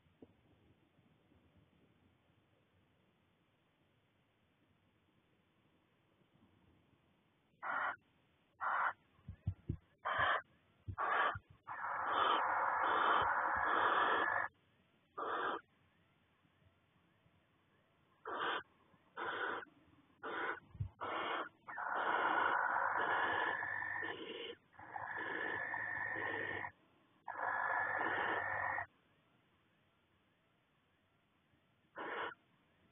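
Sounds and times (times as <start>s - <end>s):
owls hissing calls: 7.6s - 8.0s, 8.6s - 9.0s, 10.0s - 14.6s, 15.2s - 15.7s, 18.2s - 28.9s, 31.9s - 32.4s.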